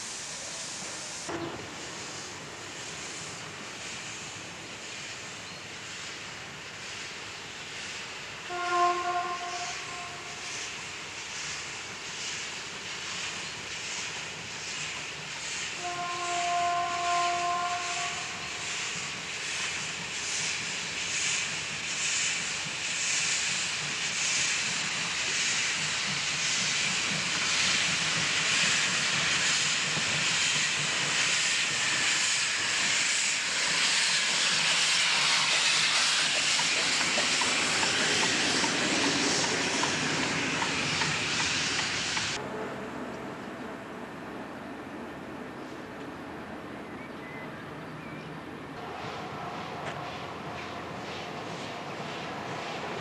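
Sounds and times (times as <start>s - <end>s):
steam hissing: 0.0s - 42.4s, 48.8s - 53.0s
steam locomotive exhaust chuffs: 0.0s - 42.4s
steam locomotive whistle: 8.5s - 10.5s, 15.8s - 18.6s.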